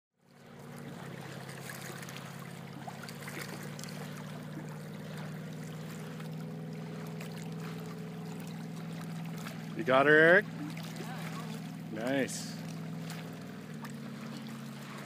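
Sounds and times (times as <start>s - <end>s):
low engine hum: 0.2s - 15.0s
water splashing and lapping: 0.2s - 15.0s.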